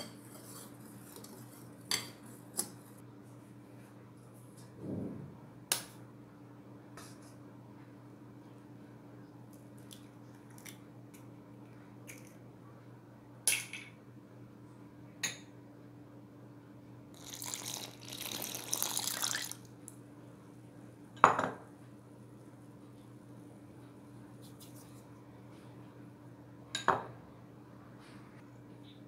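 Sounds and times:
milk pouring: 17.2s - 19.7s.

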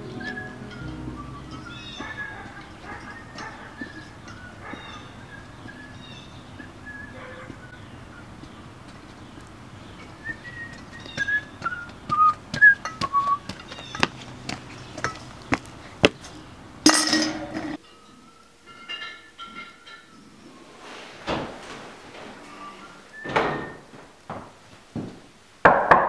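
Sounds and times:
person whistling a tune: 0.1s - 1.9s, 10.2s - 13.5s
hard shoes clicking on concrete: 7.2s - 16.4s.

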